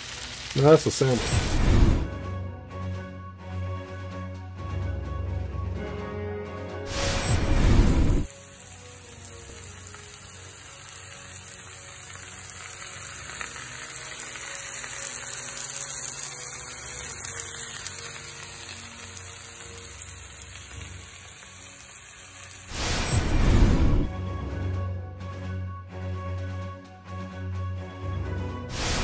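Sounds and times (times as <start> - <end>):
food sizzling on griddle: 0.0 - 1.6, 6.9 - 23.3
transition music: 1.1 - 11.6, 12.2 - 29.0.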